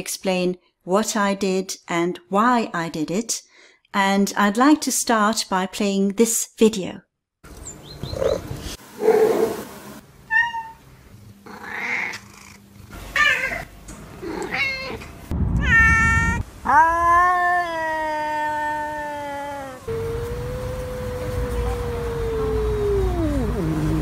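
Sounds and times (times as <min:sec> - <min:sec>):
long drawn-out cat call: 0:10.3 - 0:10.8, 0:15.6 - 0:24.0
cats meowing: 0:13.1 - 0:23.9.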